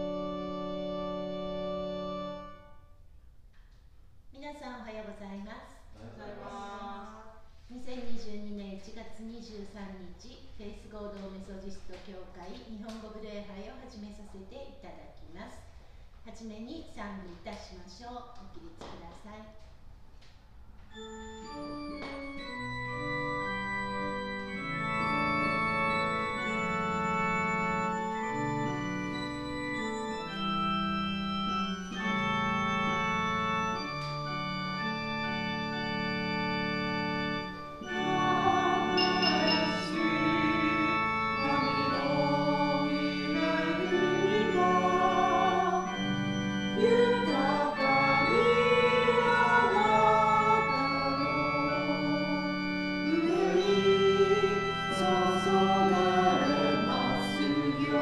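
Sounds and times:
organ playing held chords: 0.0s - 3.1s, 20.8s - 58.0s
voices singing: 6.0s - 7.3s, 37.8s - 58.0s.

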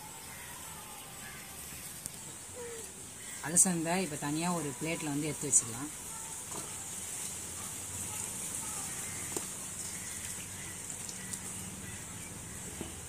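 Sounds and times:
steady high hiss: 0.0s - 13.0s
water splashing and dripping: 4.7s - 13.0s.

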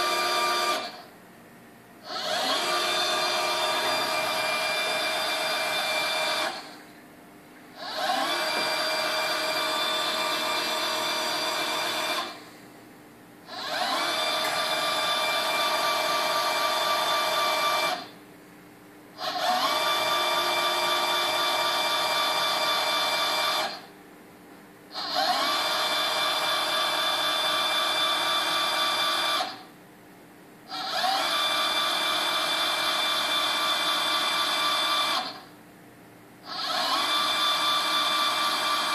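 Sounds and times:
machine axis drive whining: 2.0s - 6.8s, 7.8s - 12.4s, 13.5s - 18.1s, 19.2s - 23.8s, 30.7s - 35.4s, 36.5s - 38.9s.

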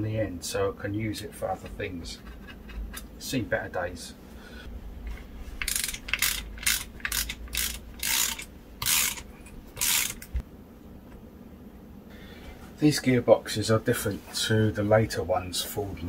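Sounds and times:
socket ratchet clicking: 5.1s - 10.4s.

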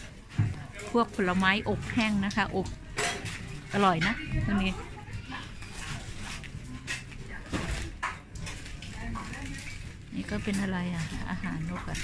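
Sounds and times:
busy market stall noise: 0.0s - 12.0s.

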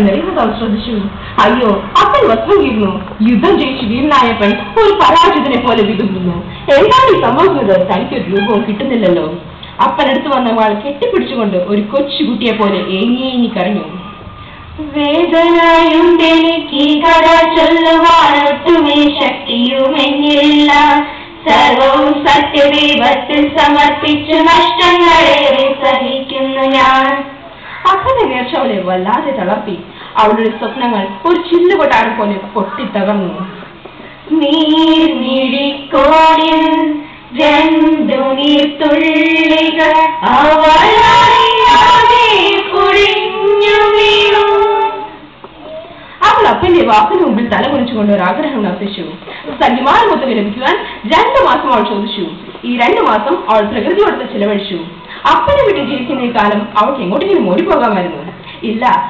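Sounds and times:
girl singing into a microphone: 14.6s - 28.1s, 33.6s - 46.6s.

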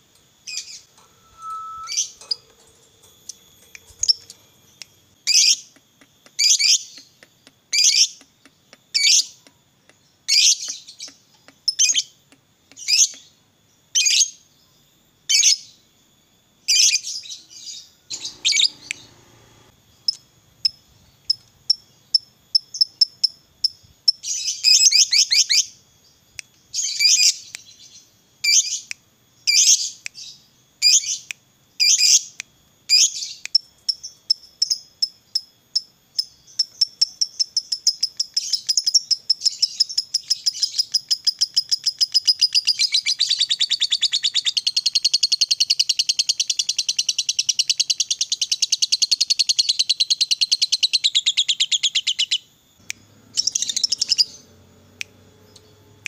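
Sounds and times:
lovebird chattering and trilling: 18.1s - 19.2s, 53.3s - 54.6s.

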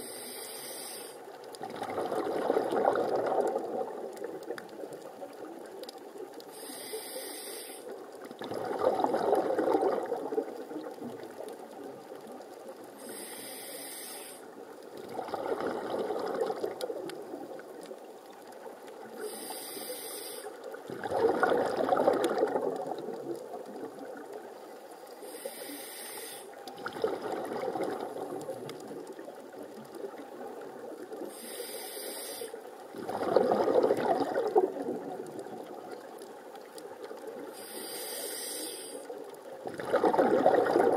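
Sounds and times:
regulator inhale hiss: 0.0s - 1.3s, 6.5s - 8.0s, 13.0s - 14.6s, 19.2s - 20.8s, 25.1s - 26.6s, 31.2s - 32.7s, 37.5s - 39.2s.

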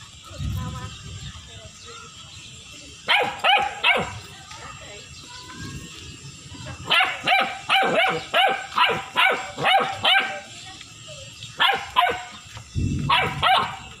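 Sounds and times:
puppy barking: 3.1s - 4.2s, 6.9s - 10.5s, 11.6s - 12.4s, 13.1s - 13.9s.

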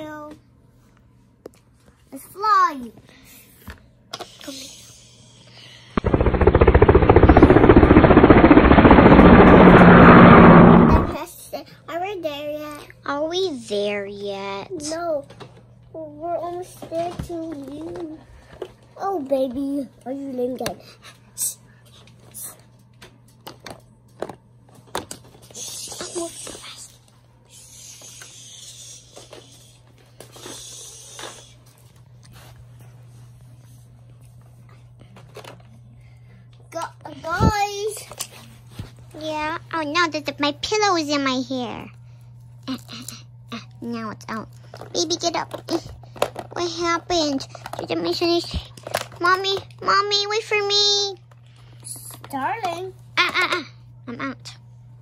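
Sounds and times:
child making breathy hissing sounds: 4.2s - 6.0s, 25.5s - 26.9s, 27.5s - 31.6s
steady low hum: 5.9s - 11.2s
toy helicopter rotor sound: 6.0s - 11.2s, 27.5s - 31.6s.

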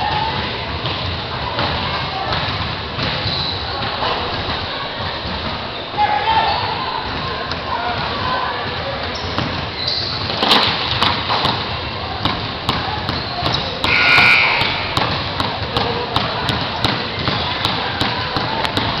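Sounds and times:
basketballs bouncing on hardwood: 12.2s - 19.0s.

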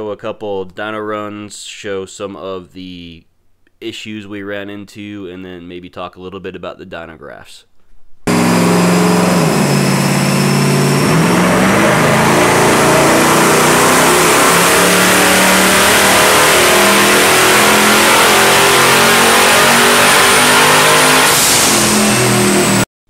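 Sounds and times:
engine running loud: 8.3s - 22.8s.

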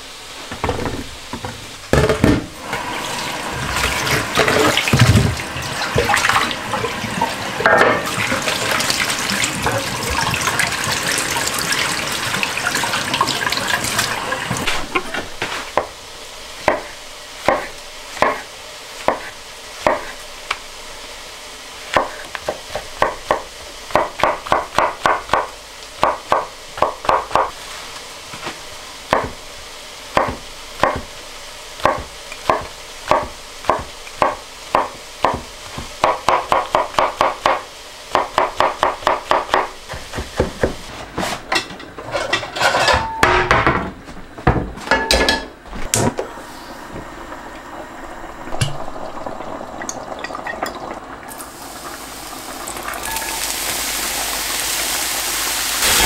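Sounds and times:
tap water running into sink: 0.6s - 15.1s, 48.4s - 56.0s
knife chopping on wooden board: 16.6s - 20.2s, 29.1s - 29.4s, 30.2s - 31.1s, 31.8s - 40.8s.

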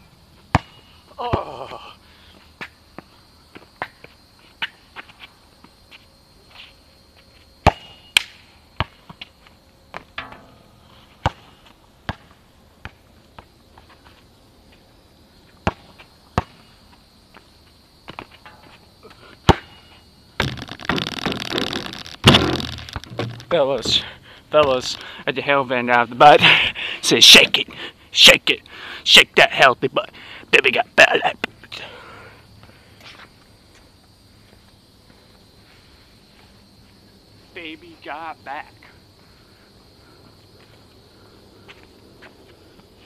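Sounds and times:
basketball bouncing on asphalt: 0.5s - 0.9s, 7.6s - 8.0s, 8.8s - 9.3s, 11.2s - 14.0s, 15.6s - 16.7s, 20.4s - 24.0s.

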